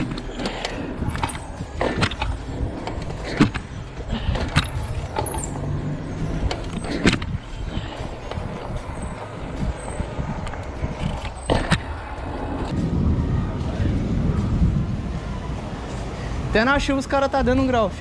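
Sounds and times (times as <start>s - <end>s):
bike rattling over bumps: 0.0s - 14.8s
bike tyres rumbling on asphalt: 0.0s - 18.0s
wind on microphone: 6.0s - 16.6s.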